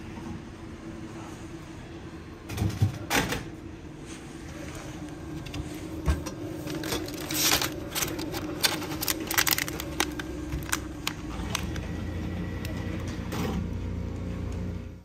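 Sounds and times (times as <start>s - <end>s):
steady low hum: 0.0s - 15.0s
plastic pack clicking and crinkling: 6.6s - 12.0s.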